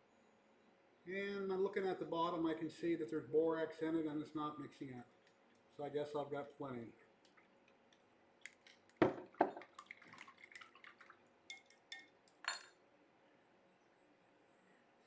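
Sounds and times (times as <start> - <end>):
glass cup knocking on table: 9.0 - 9.6
glass clinks: 11.5 - 12.7.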